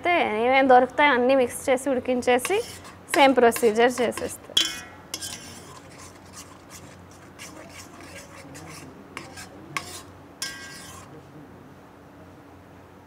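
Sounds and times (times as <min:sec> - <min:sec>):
spoon clinking against pot: 0:02.4 - 0:06.5, 0:07.4 - 0:11.1
metal spoon stirring thick soup: 0:02.4 - 0:11.1.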